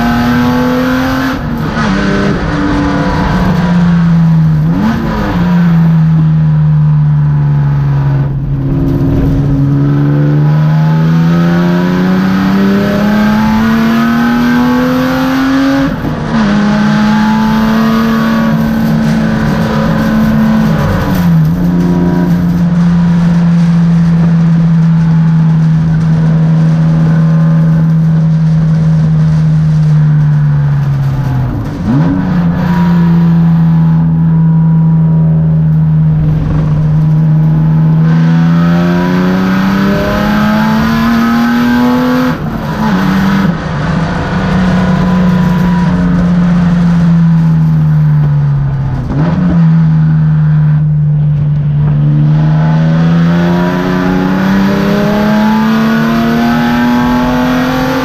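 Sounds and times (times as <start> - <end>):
race car engine at speed: 0.0 - 58.0.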